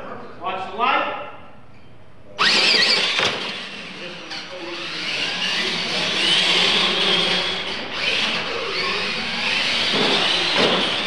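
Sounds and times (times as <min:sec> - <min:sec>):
electric motors whining: 0:02.4 - 0:11.0.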